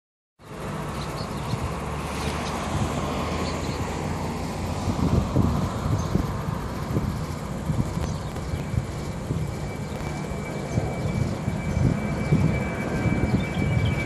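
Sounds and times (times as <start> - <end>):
jet engines rumbling: 0.4 - 14.0
wind buffeting microphone: 0.9 - 14.0.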